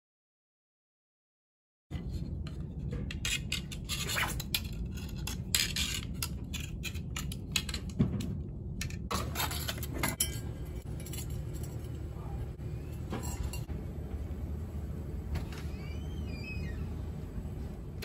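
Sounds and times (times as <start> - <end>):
wire clicking and scraping: 2.0 - 12.1
steady low rumble: 10.4 - 15.3, 16.8 - 18.0.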